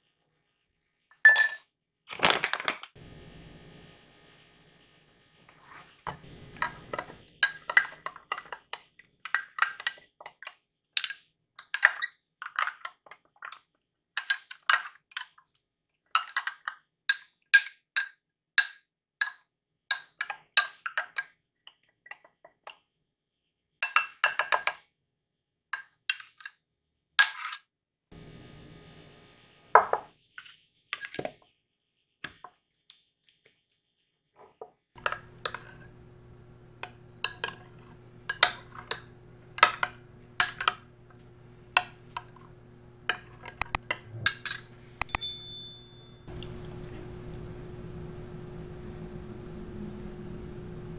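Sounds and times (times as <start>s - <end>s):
spoon clinking in glass jar: 1.1s - 1.7s, 44.3s - 46.4s.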